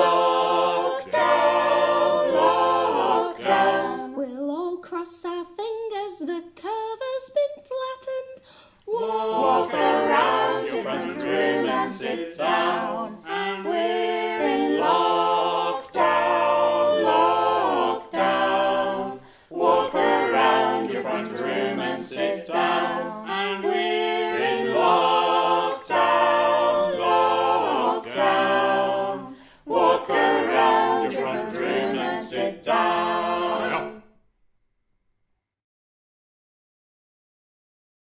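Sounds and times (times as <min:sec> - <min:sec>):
group singing a cappella: 0:00.0 - 0:04.3, 0:08.8 - 0:34.2.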